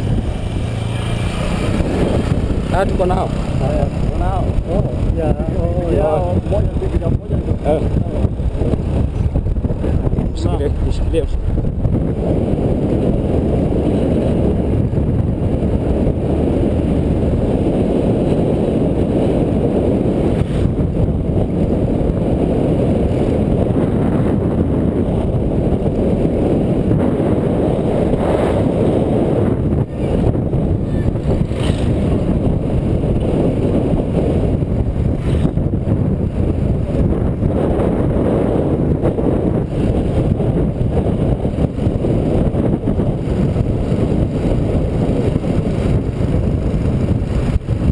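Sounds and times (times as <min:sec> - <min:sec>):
small motorcycle engine running: 0:00.0 - 0:10.7
wind rumble on microphone: 0:00.0 - 0:47.9.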